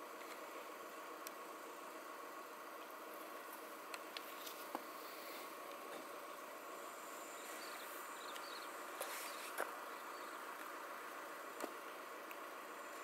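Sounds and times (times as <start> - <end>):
insect hum: 0.0 - 13.0
faint sharp clicks: 8.3 - 9.7.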